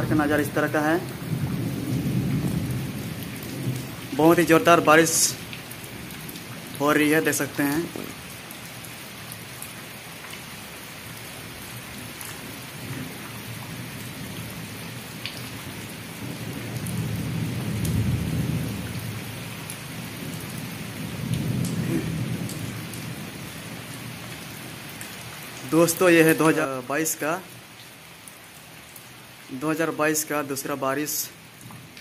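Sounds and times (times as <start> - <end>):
thunder rumbling: 0.0 - 6.4, 16.2 - 23.5
heavy rain falling: 0.0 - 32.0.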